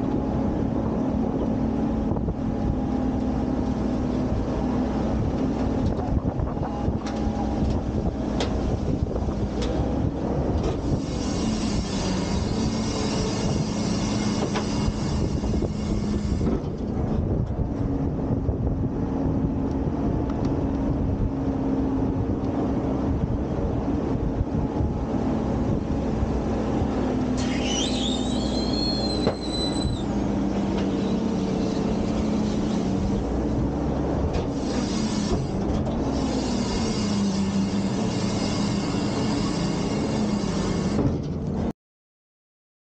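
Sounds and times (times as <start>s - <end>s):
garbage truck engine drone: 0.0s - 41.7s
short metallic squeal: 10.8s - 16.5s, 27.4s - 30.1s, 30.8s - 33.2s, 34.5s - 41.1s.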